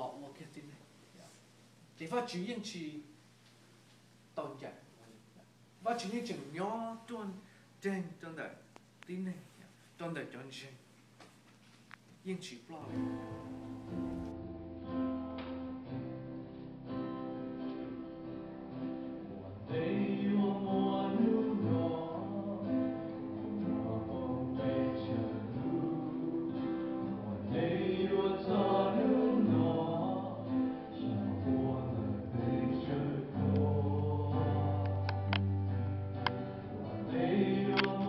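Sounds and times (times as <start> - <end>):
acoustic guitar: 12.8 - 38.0
group of voices singing: 19.3 - 35.5, 36.7 - 38.0.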